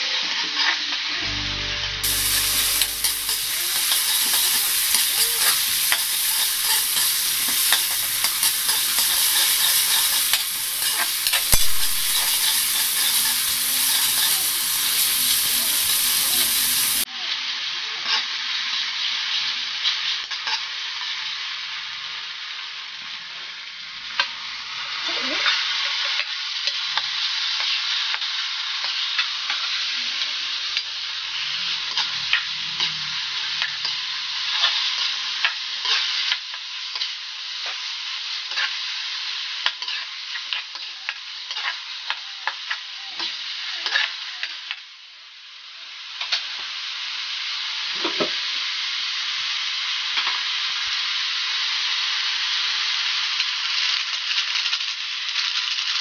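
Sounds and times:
food sizzling in oil: 0:00.0 - 0:56.0
spatula scraping pan: 0:02.0 - 0:17.0.

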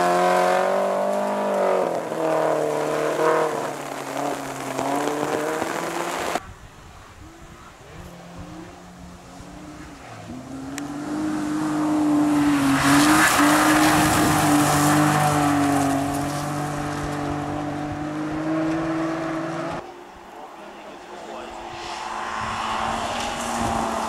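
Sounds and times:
rally car engine passing: 0:00.0 - 0:06.4, 0:07.5 - 0:24.0
gravel spray hissing: 0:01.0 - 0:06.4.

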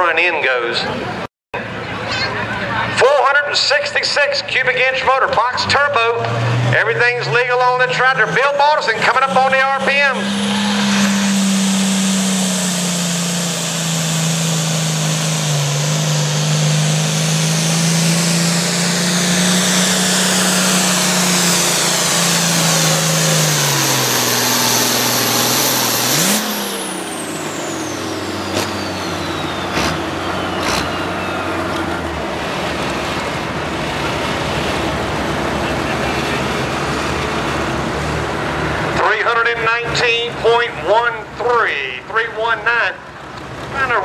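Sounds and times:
diesel tractor engine at full throttle: 0:00.0 - 0:44.0
turbo whine: 0:08.0 - 0:32.2.

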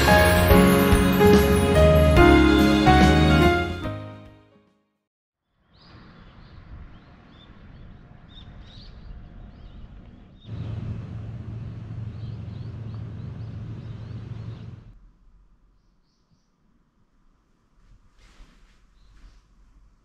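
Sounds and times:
small birds chirping: 0:05.5 - 0:15.0, 0:15.6 - 0:16.7, 0:18.8 - 0:19.6
low steady hum: 0:10.5 - 0:18.0.

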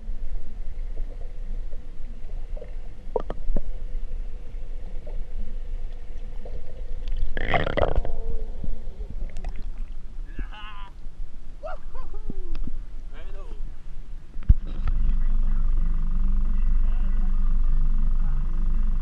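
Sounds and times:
muffled underwater rumble: 0:00.0 - 0:19.0
water gushing: 0:06.4 - 0:08.4.

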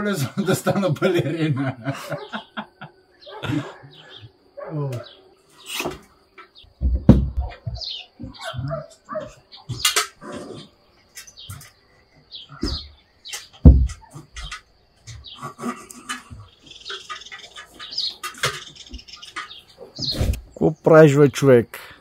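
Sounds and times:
knocks and clatter of boards: 0:06.8 - 0:08.8, 0:12.6 - 0:20.3.

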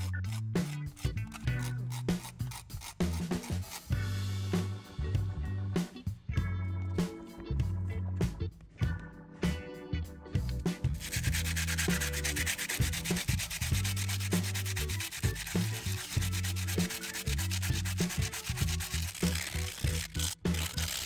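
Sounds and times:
sandpaper scrubbing: 0:00.0 - 0:04.0, 0:10.9 - 0:21.0
low background music: 0:00.0 - 0:21.0.

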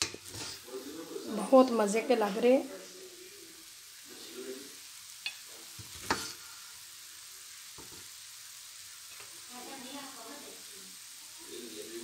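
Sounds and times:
spoon stirring rice in pot: 0:00.0 - 0:00.7, 0:05.2 - 0:06.6.

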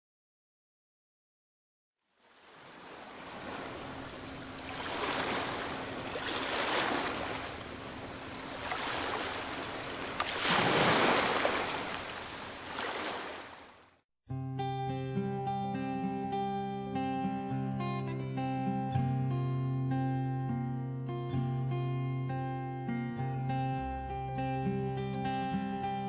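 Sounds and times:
ocean surf washing in: 0:02.3 - 0:13.7.

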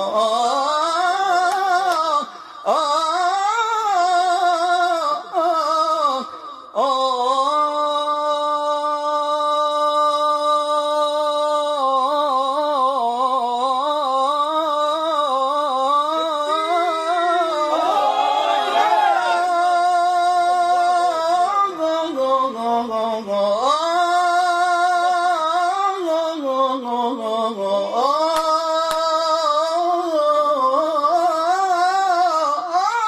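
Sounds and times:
man singing religious chant: 0:00.0 - 0:17.8, 0:19.2 - 0:33.0.

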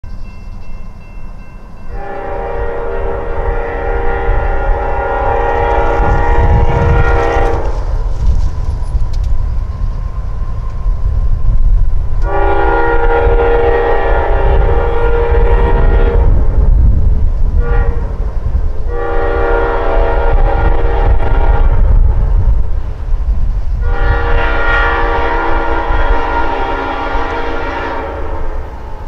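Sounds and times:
locomotive engine rumble: 0:00.0 - 0:29.0
locomotive air horn blasts: 0:01.9 - 0:07.9, 0:12.2 - 0:16.7, 0:17.5 - 0:18.3, 0:18.9 - 0:22.4, 0:23.8 - 0:29.0.

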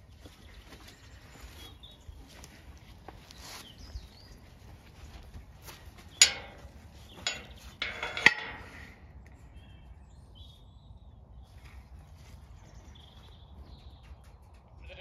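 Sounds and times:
metal gate clanging shut: 0:06.2 - 0:09.0.

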